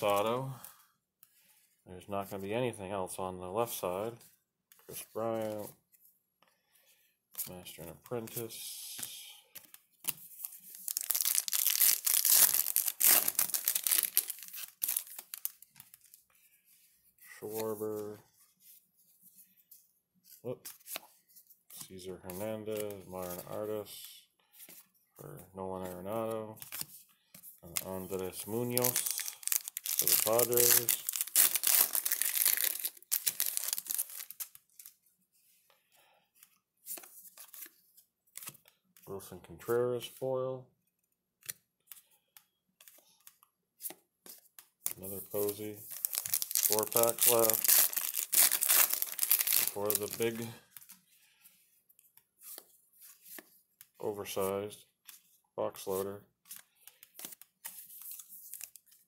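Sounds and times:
trading cards rustling: 0.0 - 0.8, 7.3 - 24.9, 25.8 - 35.6, 41.4 - 59.0
card pack wrapper crinkling: 10.4 - 16.2, 27.7 - 35.0, 44.8 - 51.0.

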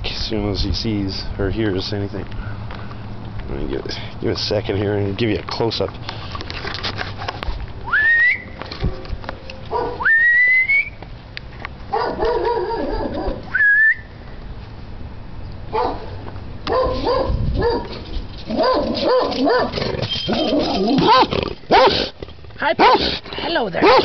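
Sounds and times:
short rising whistles: 7.9 - 8.6, 10.0 - 11.0, 13.5 - 14.2, 20.0 - 20.5
dog barking: 9.7 - 10.0, 11.9 - 13.4, 15.7 - 16.1, 16.7 - 19.8, 21.0 - 22.1, 22.8 - 23.2, 23.8 - 24.0.

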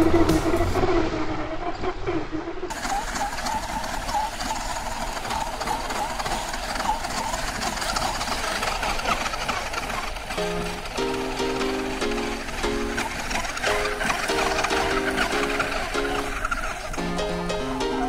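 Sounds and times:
toy car motor whining: 2.7 - 10.8.

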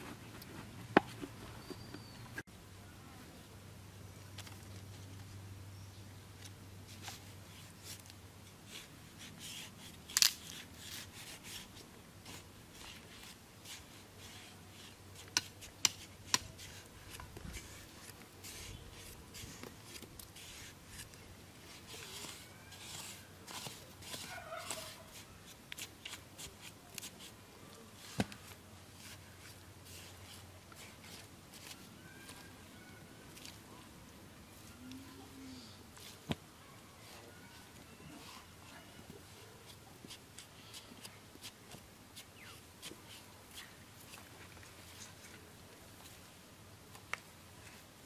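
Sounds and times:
scraping and squelching in mud: 6.9 - 33.7, 37.0 - 46.2.

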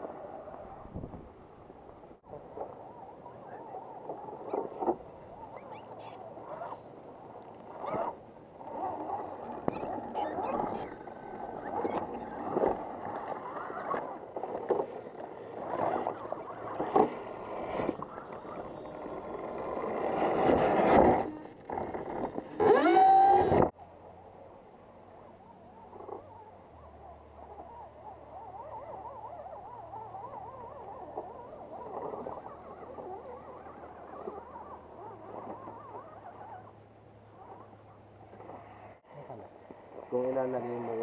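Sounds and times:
electric motors whining: 6.6 - 23.7.

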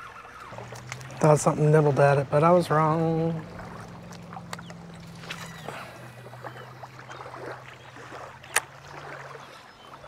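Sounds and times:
low motor hum: 0.0 - 10.0
water splashes and ticks: 0.0 - 10.0.

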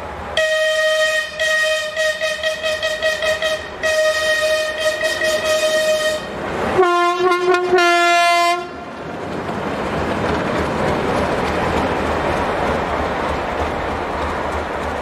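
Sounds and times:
train wheels rolling on rails: 0.0 - 15.0
locomotive horn: 0.4 - 8.9.

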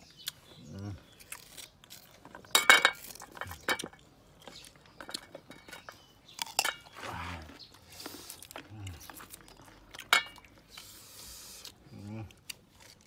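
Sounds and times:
crunching and chewing fruit: 0.0 - 13.0
low voice humming: 11.8 - 12.4.

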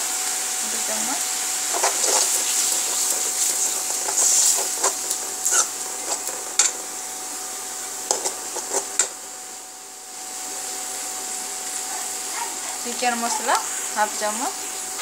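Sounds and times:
steady hiss: 0.0 - 15.0
spoon scraping metal pan: 1.7 - 6.8, 8.1 - 9.1.

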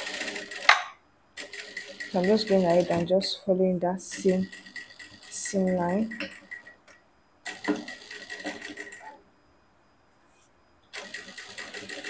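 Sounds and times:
sewing machine stitching: 0.0 - 3.4, 4.0 - 6.8, 7.5 - 9.2, 11.0 - 12.0.

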